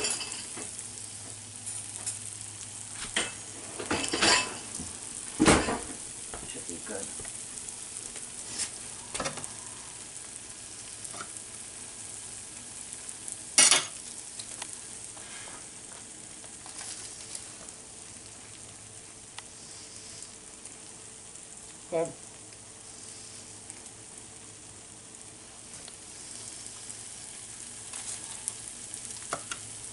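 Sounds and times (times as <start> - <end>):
frying pan sizzling: 0.0 - 29.9
cutlery clinking: 3.1 - 4.6, 13.6 - 14.0.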